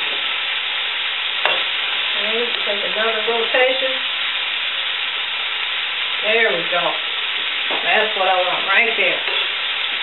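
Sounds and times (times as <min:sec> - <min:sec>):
vegetables sizzling in a skillet: 0:00.0 - 0:10.0
woman speaking: 0:02.1 - 0:04.0, 0:06.2 - 0:07.0, 0:07.8 - 0:09.3
greens stirred in a pot: 0:06.2 - 0:10.0.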